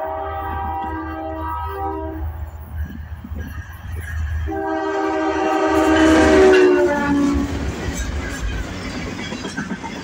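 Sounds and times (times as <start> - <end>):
locomotive air horn blast: 0.0 - 2.3, 4.5 - 7.6
train rumble and wheel clatter: 0.0 - 10.0.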